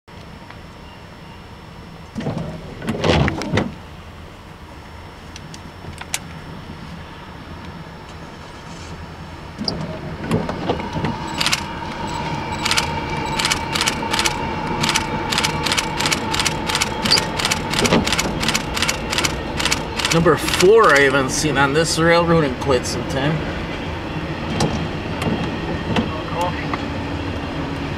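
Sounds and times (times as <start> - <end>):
train low rumble: 0.1 - 27.9
steady train tone: 6.5 - 27.9
train wheels clicking: 10.8 - 21.2.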